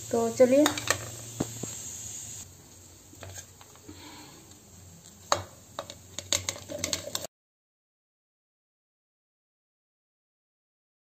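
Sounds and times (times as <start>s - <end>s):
plates and steel jar clinking: 0.6s - 1.2s, 5.8s - 7.3s.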